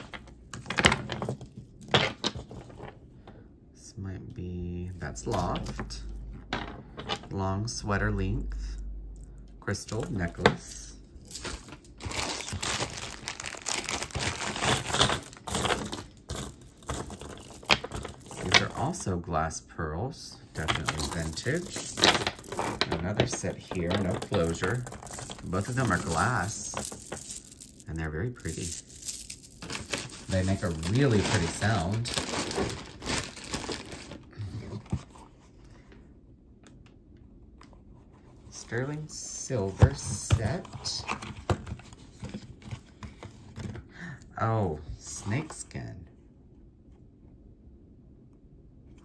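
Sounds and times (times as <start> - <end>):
beads clicking together: 20.6 - 22.9, 23.8 - 30.8.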